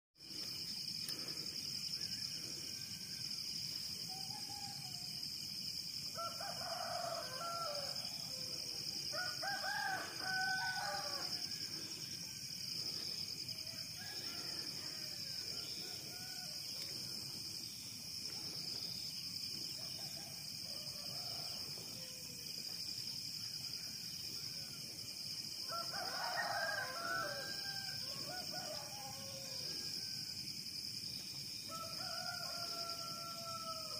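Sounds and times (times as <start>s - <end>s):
roosters crowing: 6.2s - 12.2s, 13.0s - 17.2s, 25.6s - 30.2s, 31.7s - 33.9s.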